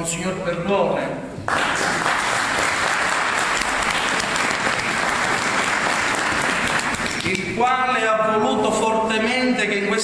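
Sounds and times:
congregation applauding: 1.4s - 7.5s.

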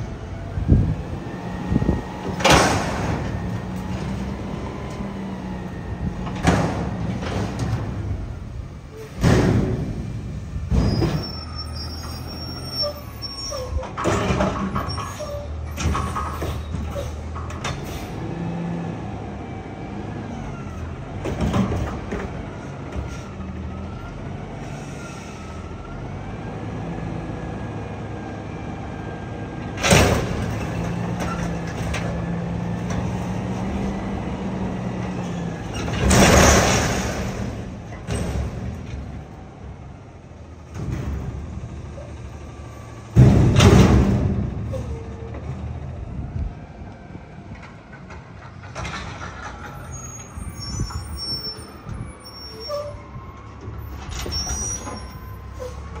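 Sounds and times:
dumpster banging and clanking: 1.6s - 5.4s, 6.0s - 18.4s, 20.3s - 23.7s, 29.6s - 39.4s, 40.5s - 46.2s, 47.4s - 52.0s.

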